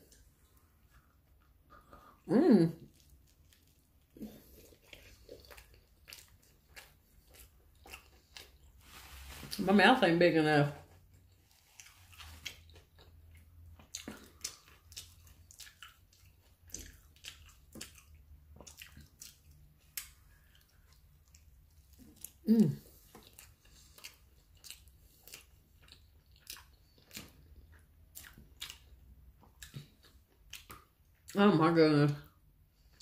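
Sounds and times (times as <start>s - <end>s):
person chewing food: 0.0s - 9.5s, 10.9s - 31.4s.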